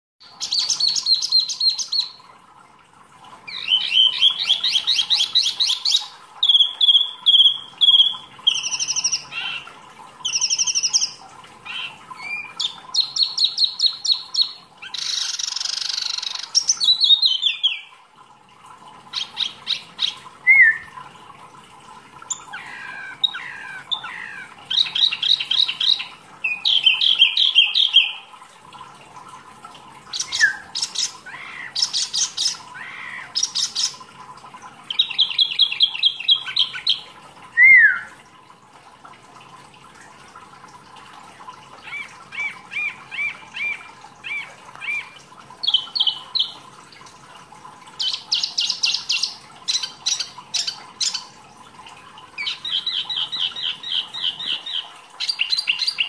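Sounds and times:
faint steady hum: 0.2s - 56.0s
songbird singing trills: 20.4s - 20.9s.

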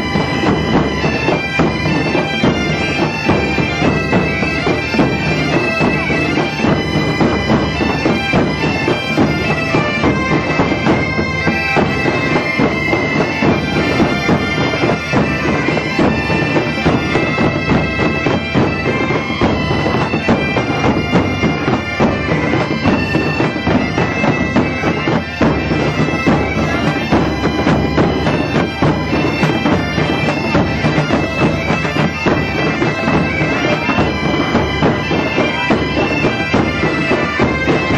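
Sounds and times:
bagpipes playing a tune: 0.0s - 37.9s
drum beating: 0.0s - 37.9s.

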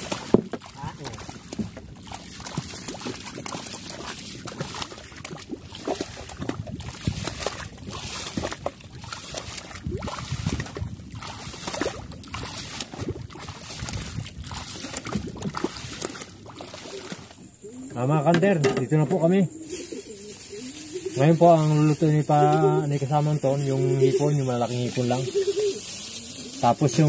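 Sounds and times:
water sloshing around wading legs: 0.0s - 17.6s.

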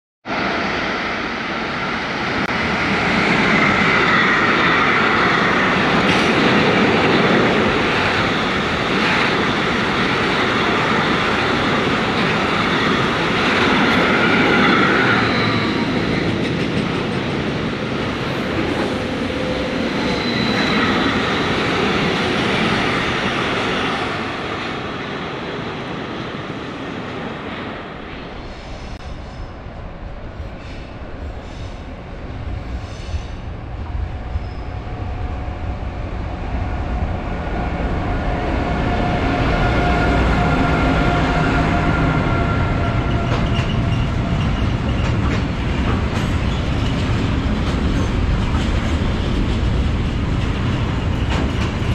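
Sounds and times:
train wheels rumbling and rattling: 1.8s - 51.9s
high wheel squeal: 18.9s - 21.6s.

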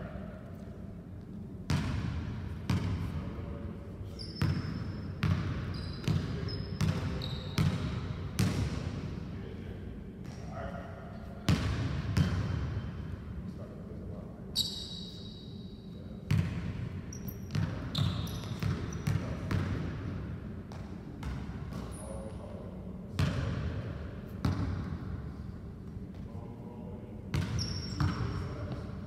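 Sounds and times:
sneaker squeaks: 4.0s - 7.9s, 14.5s - 19.6s, 21.2s - 22.5s, 27.4s - 28.9s.

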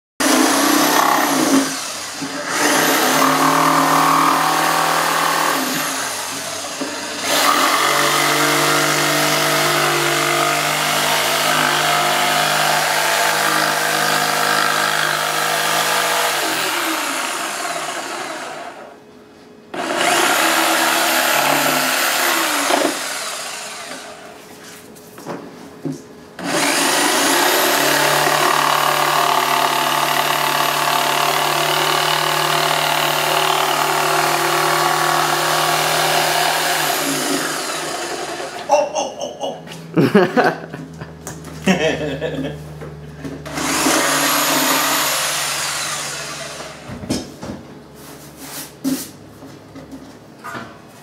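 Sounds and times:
jigsaw cutting wood: 0.2s - 19.0s, 19.7s - 24.2s, 26.4s - 38.7s, 43.4s - 47.0s.

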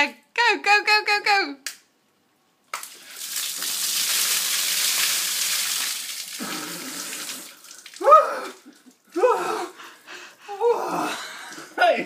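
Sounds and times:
water splashing onto paving: 2.7s - 8.2s.

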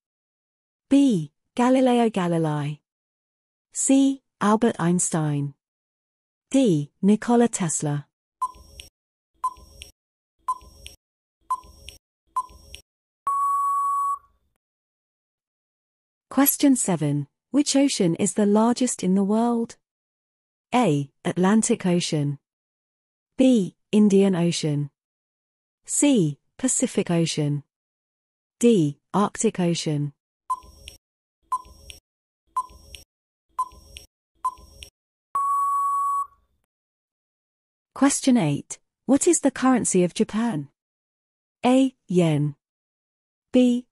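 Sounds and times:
short electronic beeps: 8.4s - 8.7s, 13.3s - 14.3s, 30.5s - 30.8s, 32.6s - 32.8s, 33.6s - 33.8s, 35.4s - 36.4s
long steady beep: 13.3s - 14.3s, 35.4s - 36.4s.

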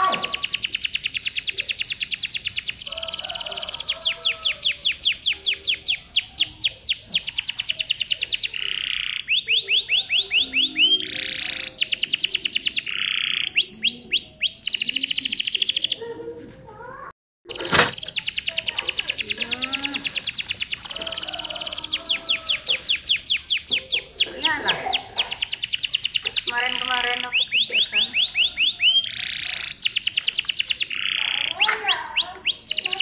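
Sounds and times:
canary singing trills: 0.0s - 16.2s, 17.5s - 33.0s.

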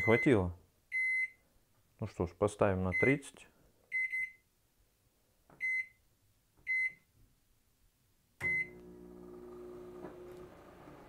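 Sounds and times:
microwave keypad beeping: 8.4s - 8.8s
microwave humming: 8.4s - 11.0s.

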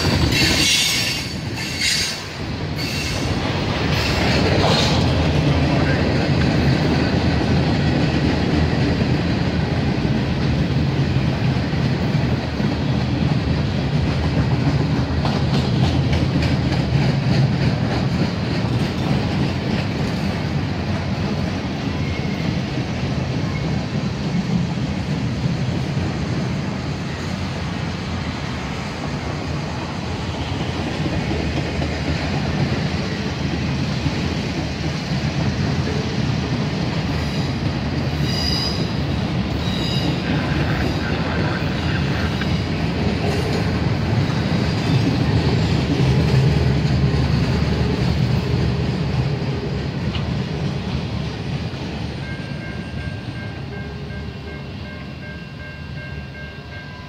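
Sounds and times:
wheels clicking over rail joints: 0.0s - 22.1s
train wheels rumbling on rails: 0.0s - 57.0s.

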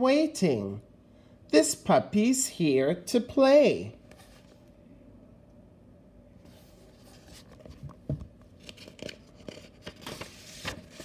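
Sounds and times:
textbook pages turning: 6.4s - 11.0s.

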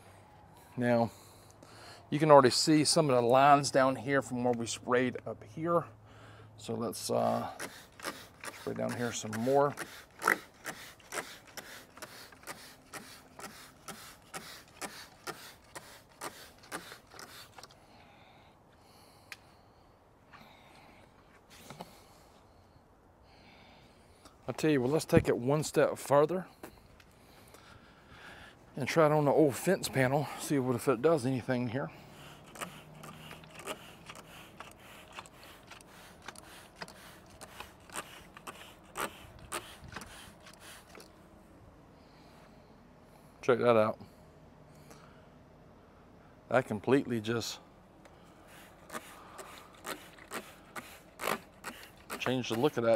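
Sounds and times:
spray bottle hissing sprays: 7.3s - 17.7s, 32.1s - 41.1s, 48.5s - 52.3s.

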